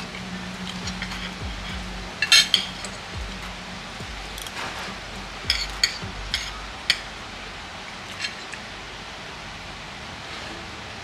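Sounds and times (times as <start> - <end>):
tableware clinking: 0.0 - 3.1, 4.3 - 7.1.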